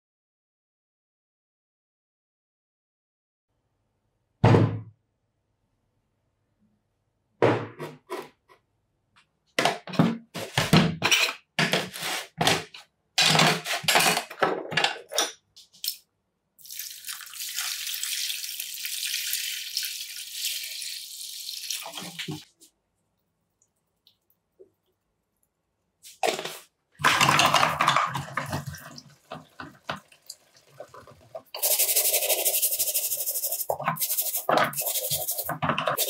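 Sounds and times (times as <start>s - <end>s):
metal parts clattering into plastic tub: 9.8s - 15.4s, 26.2s - 29.8s
water pouring into tub: 16.6s - 22.5s.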